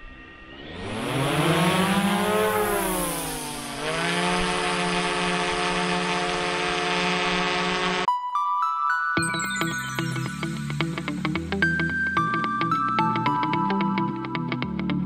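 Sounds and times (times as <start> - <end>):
drone propellers whirring: 0.0 - 8.1
music: 8.1 - 15.0.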